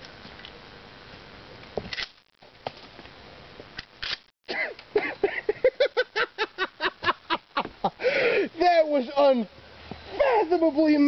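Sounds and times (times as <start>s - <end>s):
man laughing: 4.5s - 8.6s, 10.1s - 10.7s.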